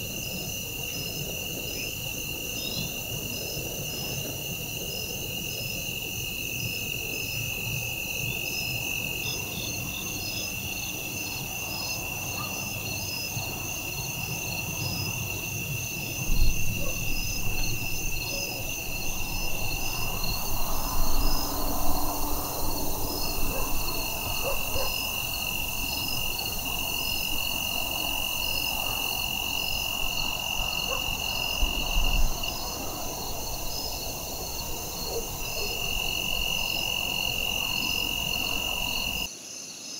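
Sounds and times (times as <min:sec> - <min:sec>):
high-pitched insect trill: 0:00.0 - 0:39.9
pulsing cricket chirp: 0:00.0 - 0:39.9
low bumps: 0:16.1 - 0:28.5.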